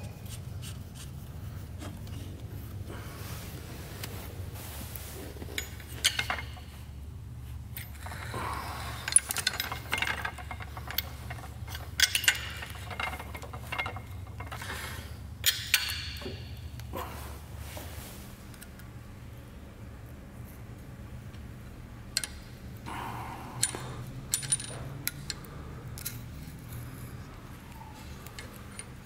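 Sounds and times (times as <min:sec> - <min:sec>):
spanner clinking on metal nuts: 0:05.6 - 0:06.8, 0:09.0 - 0:16.8, 0:22.1 - 0:22.5, 0:23.6 - 0:26.5.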